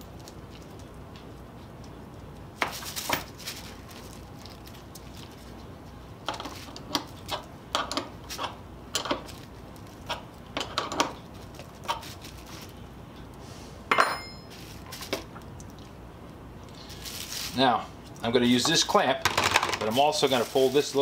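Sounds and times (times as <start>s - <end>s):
plastic bag rustling: 2.7s - 5.6s, 14.5s - 15.2s, 16.7s - 21.0s
metallic clink: 13.9s - 14.6s.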